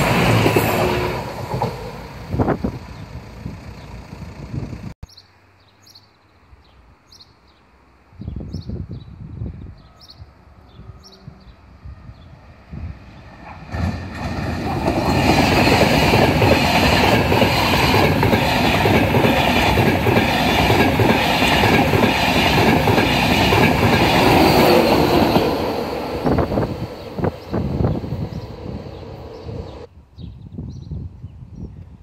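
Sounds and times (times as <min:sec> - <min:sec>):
train passing at speed: 0:00.0 - 0:04.9, 0:10.3 - 0:29.9.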